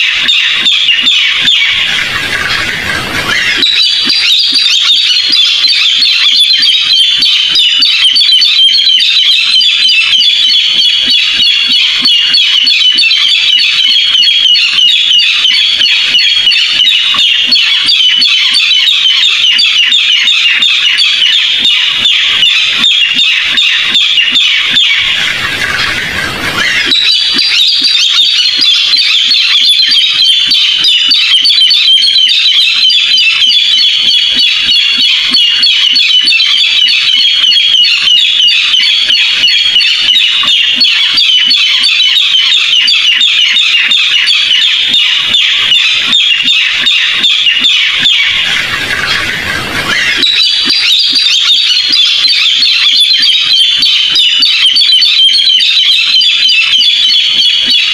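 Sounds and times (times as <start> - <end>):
bird rapid harsh chatter: 0.0 - 57.9.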